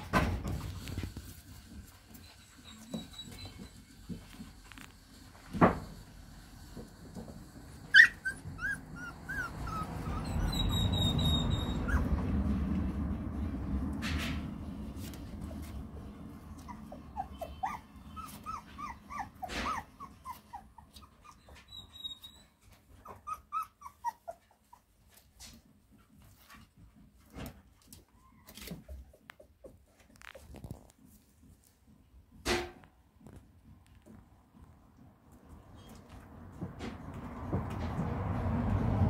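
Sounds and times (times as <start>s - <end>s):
puppies whimpering: 2.1s - 4.0s, 7.9s - 12.4s, 16.4s - 25.0s.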